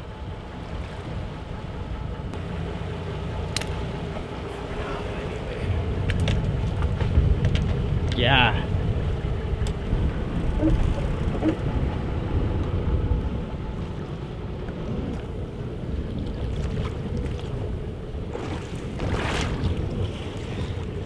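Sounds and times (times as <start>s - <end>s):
wind buffeting microphone: 3.4s - 21.0s
water sloshing against boat hull: 8.8s - 21.0s
water splashing: 13.6s - 21.0s.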